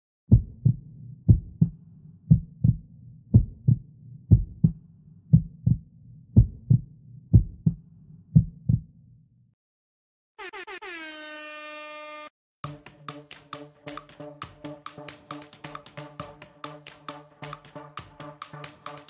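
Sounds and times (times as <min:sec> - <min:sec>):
heartbeat thumps: 0:00.3 - 0:08.9.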